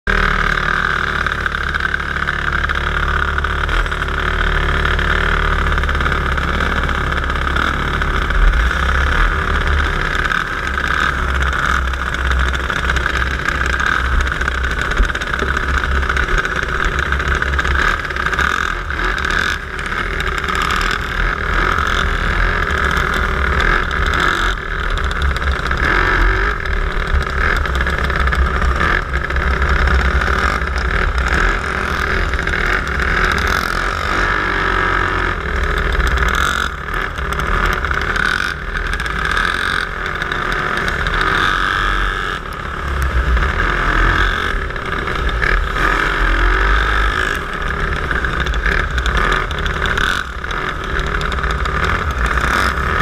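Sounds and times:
kart engines running: 0:00.1 - 0:53.0.

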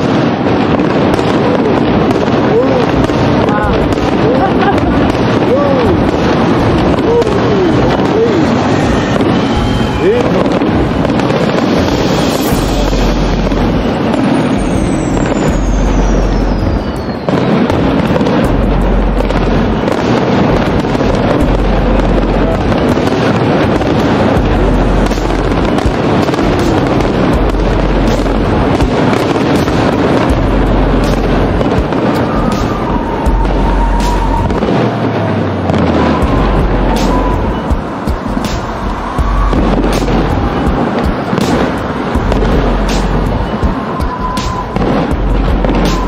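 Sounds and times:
firework crackle: 0:00.0 - 0:46.0
firework shells booming: 0:00.0 - 0:46.0
falling firework whistle: 0:04.7 - 0:18.4, 0:19.2 - 0:21.4, 0:31.0 - 0:46.0.

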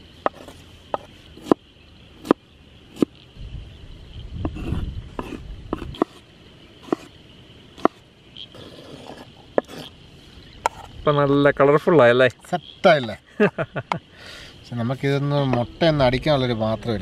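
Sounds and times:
knife chopping on cutting board: 0:06.8 - 0:07.1.

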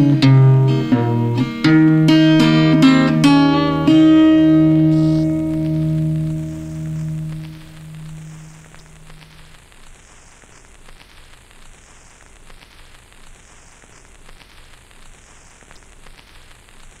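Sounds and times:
guitar note: 0:00.0 - 0:09.6
crackling hiss with clicks: 0:00.0 - 0:17.0.

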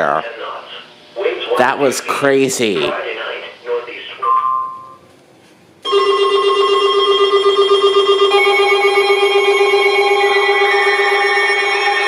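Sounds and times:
electronic alarm tones: 0:04.2 - 0:05.0, 0:05.9 - 0:12.0
short electronic beep: 0:04.3 - 0:05.0.

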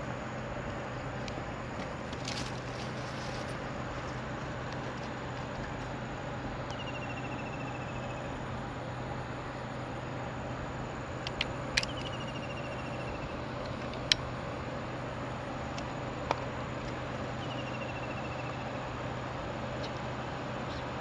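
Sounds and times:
low hum: 0:00.0 - 0:21.0
outdoor background hiss: 0:00.0 - 0:21.0
sharp clicks: 0:11.2 - 0:12.3.

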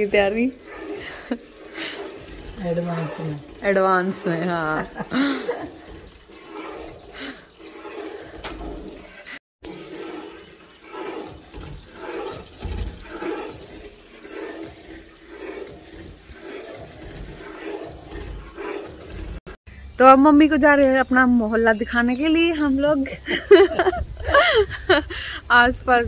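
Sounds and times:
ladle stirring thick batter: 0:00.0 - 0:19.6.

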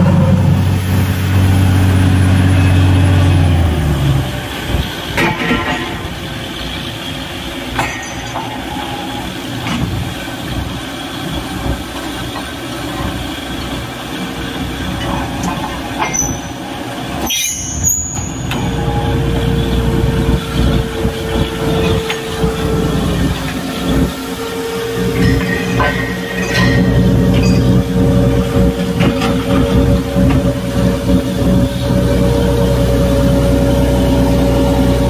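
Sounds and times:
drilling rig mechanical din: 0:00.0 - 0:35.0
steady whine: 0:00.0 - 0:35.0
sharp metallic knocks: 0:25.0 - 0:30.5.

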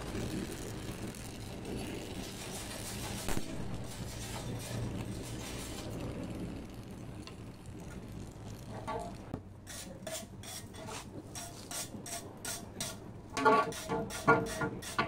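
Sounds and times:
torch flame hissing: 0:00.0 - 0:13.1
wire brush scraping metal: 0:01.9 - 0:06.0.

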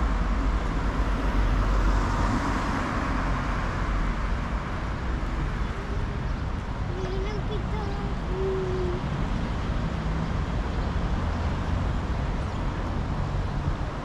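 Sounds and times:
low rumble of traffic: 0:00.0 - 0:14.0
car passing close by: 0:00.8 - 0:04.8.

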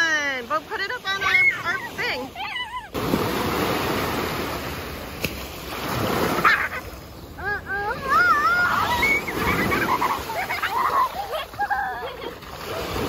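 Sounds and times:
small waves breaking on sand: 0:00.0 - 0:13.0
child calling out: 0:01.2 - 0:03.0.

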